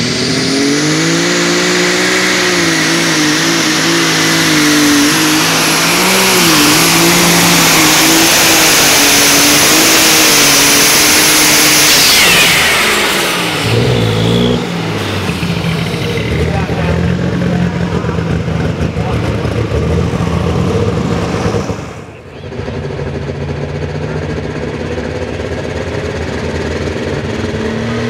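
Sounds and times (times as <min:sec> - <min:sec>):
high steady whine: 0:00.0 - 0:19.6
tractor engine under load: 0:00.0 - 0:28.0.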